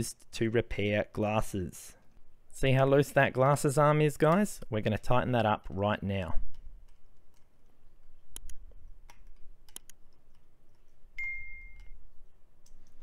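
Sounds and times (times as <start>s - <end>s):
mouse clicks: 8.3s - 11.0s
bell ding: 11.2s - 11.8s.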